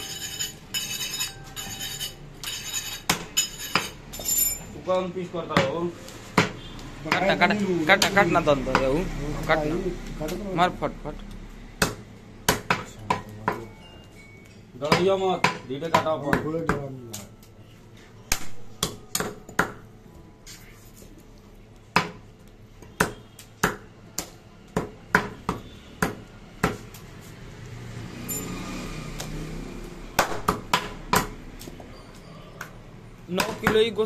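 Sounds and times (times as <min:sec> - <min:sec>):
meat cleavers chopping on wood: 0:03.0 - 0:04.1, 0:05.4 - 0:10.5, 0:11.3 - 0:13.7, 0:14.8 - 0:17.4, 0:18.3 - 0:19.9, 0:21.8 - 0:27.2, 0:29.1 - 0:29.5, 0:30.1 - 0:31.9, 0:32.5 - 0:34.0.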